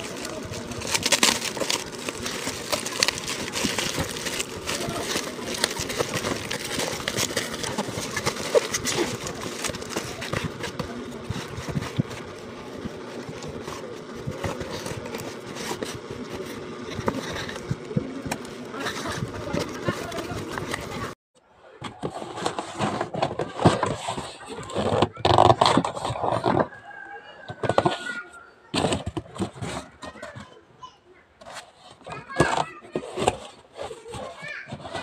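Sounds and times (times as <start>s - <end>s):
cardboard box rustling: 0.0s - 21.2s
plastic wrap crackling: 0.0s - 21.2s.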